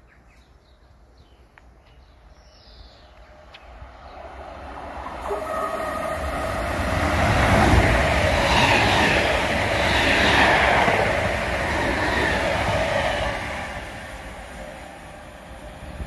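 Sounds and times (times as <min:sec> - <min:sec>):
wheels on rail: 0:03.0 - 0:16.0
rushing air: 0:03.7 - 0:16.0.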